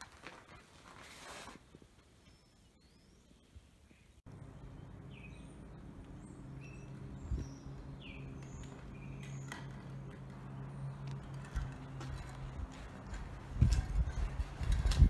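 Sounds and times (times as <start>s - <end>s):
small birds chirping: 2.0s - 15.0s
steady low hum: 4.3s - 15.0s.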